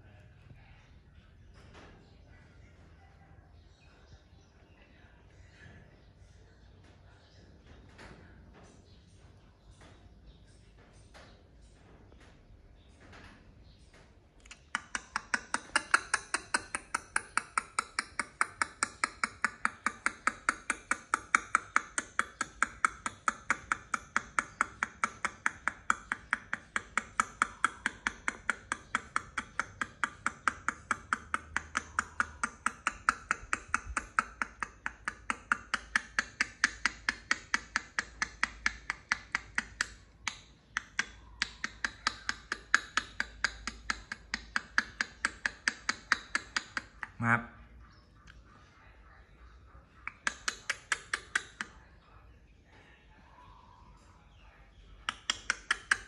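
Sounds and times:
rhythmic tapping: 0:13.9 - 0:47.5.

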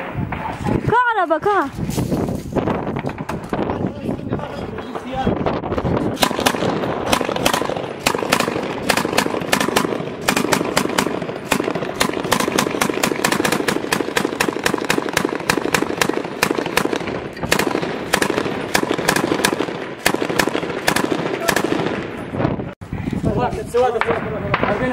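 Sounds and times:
machine gun firing bursts: 0:06.1 - 0:22.2.

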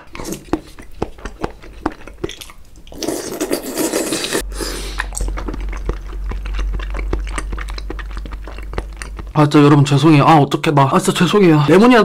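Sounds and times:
wet chewing clicks: 0:00.0 - 0:10.2
person slurping food: 0:02.9 - 0:09.4.

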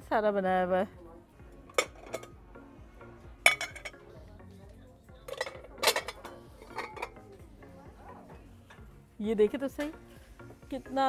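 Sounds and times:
glass dish clinking on ceramic: 0:03.4 - 0:04.0.

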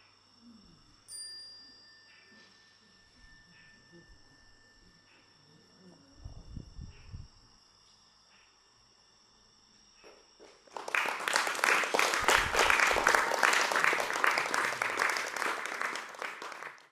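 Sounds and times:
crickets chirring: 0:00.0 - 0:16.8
audience applause: 0:10.6 - 0:16.9.

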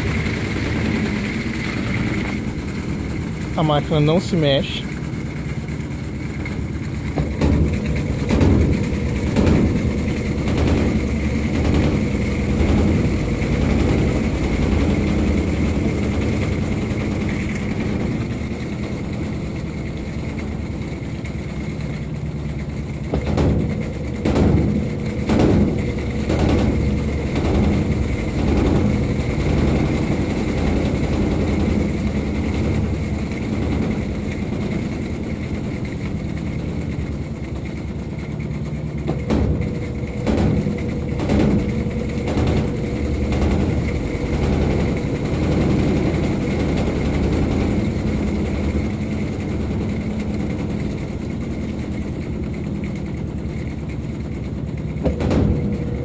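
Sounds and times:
washing machine spin hum: 0:00.0 - 0:56.0
quick knocks in washing machine: 0:06.9 - 0:20.8, 0:22.6 - 0:37.2, 0:38.9 - 0:53.0, 0:54.9 - 0:56.0.

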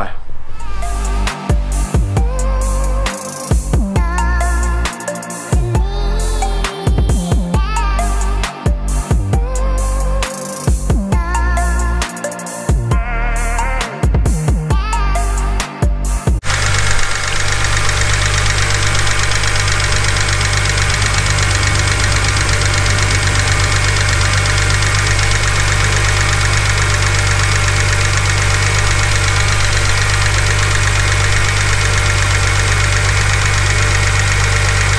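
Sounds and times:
car engine idling: 0:16.4 - 0:34.9.

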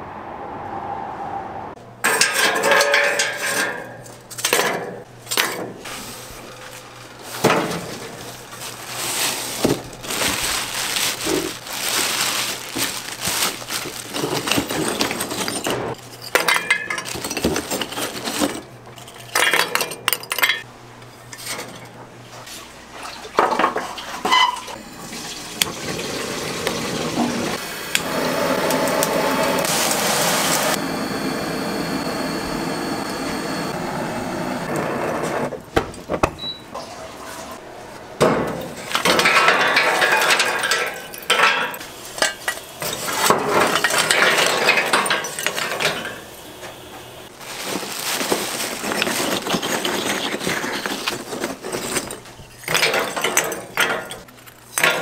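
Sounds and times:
dishes and utensils clattering: 0:02.0 - 0:05.7, 0:12.2 - 0:22.0, 0:38.2 - 0:46.4, 0:48.2 - 0:55.0.

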